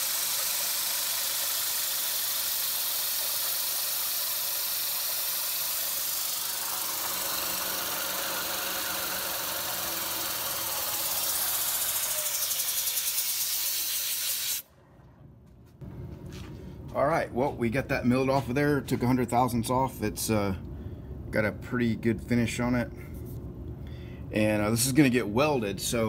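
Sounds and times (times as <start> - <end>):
milling machine hissing: 0.0 - 14.6.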